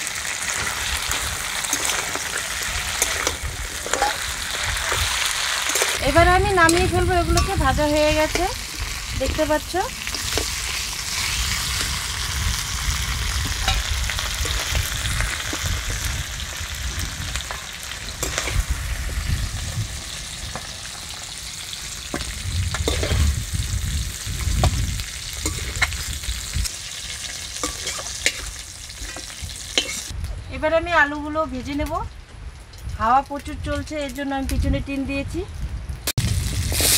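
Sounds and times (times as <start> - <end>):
fish sizzling in hot oil: 0.0 - 30.2, 36.1 - 36.9
wind rumble on microphone: 0.7 - 26.7, 28.2 - 36.9
metal spatula scraping and clinking: 1.6 - 6.0, 6.6 - 8.5, 17.4 - 18.6, 22.8 - 23.3, 25.4 - 26.0, 27.0 - 30.1.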